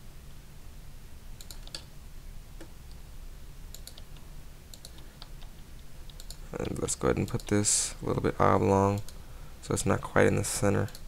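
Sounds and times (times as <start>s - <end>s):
low steady hum: 0.0s - 11.0s
keyboard and mouse clicking: 1.4s - 1.9s, 3.7s - 7.6s, 8.9s - 9.2s, 10.8s - 11.0s.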